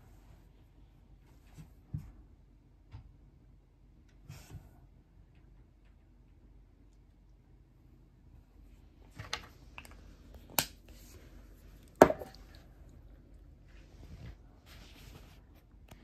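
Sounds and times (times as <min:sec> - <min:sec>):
rustling: 0:10.8 - 0:15.9
tube set down on wooden table: 0:12.0 - 0:12.4.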